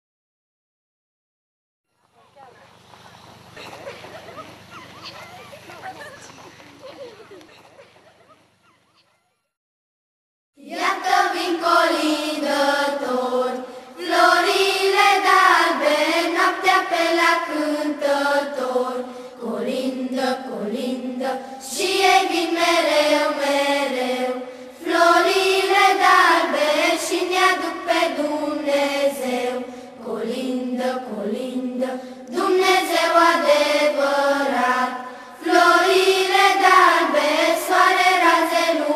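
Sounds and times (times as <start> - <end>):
children singing a carol: 10.6 - 38.9.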